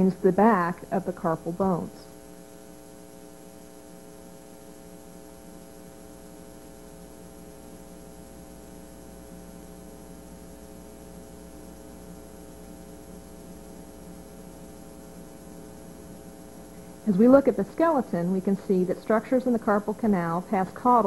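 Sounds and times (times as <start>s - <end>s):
electrical mains hum: 0.0s - 21.0s.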